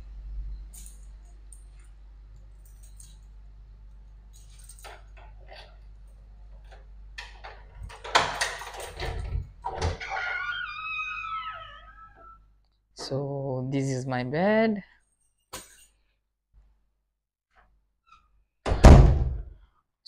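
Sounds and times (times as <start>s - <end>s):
latch rattling: 7.2s - 10.7s
door squeaking open: 9.1s - 12.4s.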